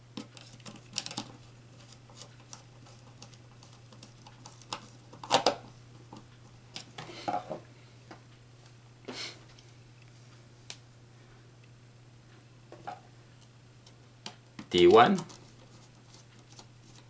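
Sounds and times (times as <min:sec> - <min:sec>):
wires handled: 0:00.2 - 0:07.4, 0:12.8 - 0:17.0.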